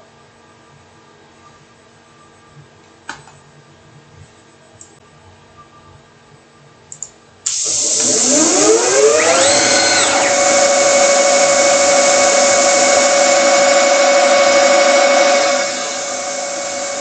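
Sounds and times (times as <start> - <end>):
lathe spindle motor whining: 7.5 - 17.0.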